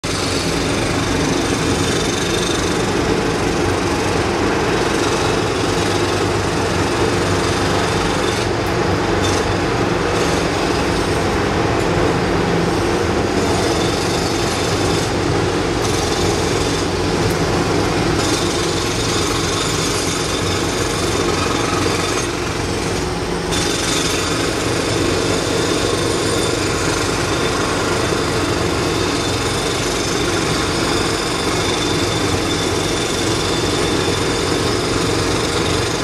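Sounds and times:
jackhammers breaking concrete: 13.4s - 36.0s.

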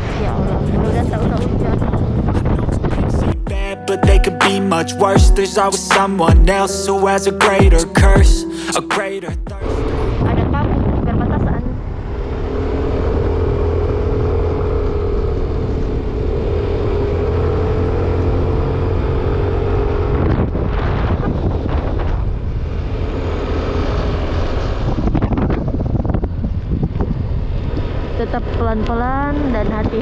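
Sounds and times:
wind buffeting microphone: 0.0s - 3.6s, 9.8s - 17.0s, 18.7s - 30.0s.

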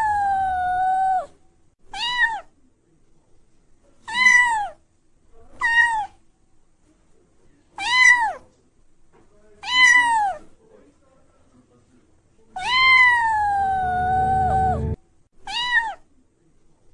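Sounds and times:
kitten meowing: 0.0s - 1.3s, 1.9s - 2.5s, 4.1s - 4.8s, 5.6s - 6.2s, 7.8s - 8.4s, 9.6s - 10.4s, 12.6s - 16.0s.

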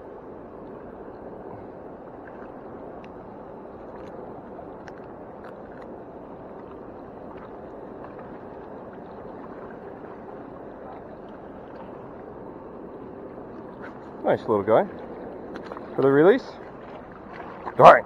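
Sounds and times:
river water rushing: 0.8s - 18.0s.

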